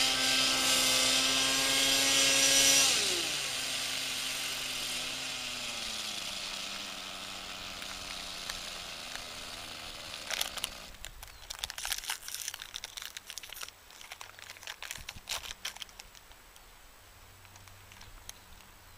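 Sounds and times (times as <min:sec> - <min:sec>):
rc helicopter motor whine: 0:00.0 - 0:11.0
irregular crackling clicks: 0:17.4 - 0:18.7.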